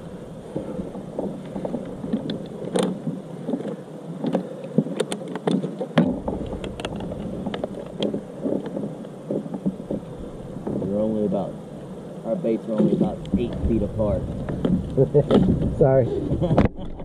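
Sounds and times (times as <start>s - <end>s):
low rumble: 6.1s - 17.0s.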